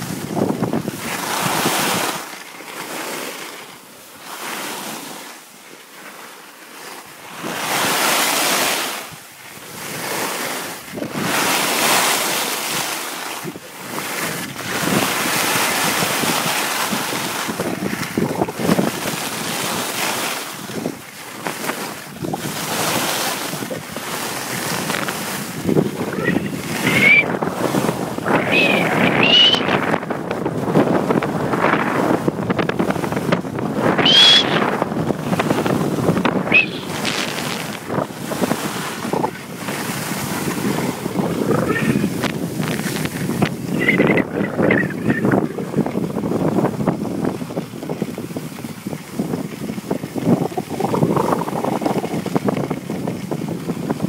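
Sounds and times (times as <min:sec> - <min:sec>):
wind rushing over microphone: 0:00.0 - 0:03.4, 0:07.2 - 0:54.0
skis hissing over snow: 0:35.4 - 0:39.1.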